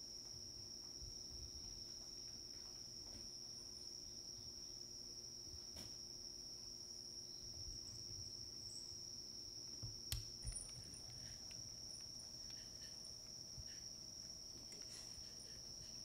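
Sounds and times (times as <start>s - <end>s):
crickets trilling: 0.0s - 16.0s
intermittent chirps: 0.0s - 16.0s
sharp click: 9.8s - 12.9s.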